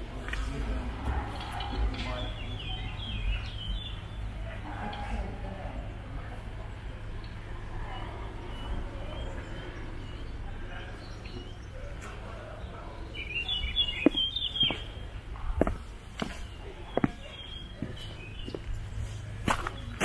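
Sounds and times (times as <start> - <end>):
low background noise: 0.0 - 20.0
small birds chirping: 1.3 - 4.4, 7.1 - 20.0
footsteps on gravel: 14.0 - 14.9, 15.6 - 20.0.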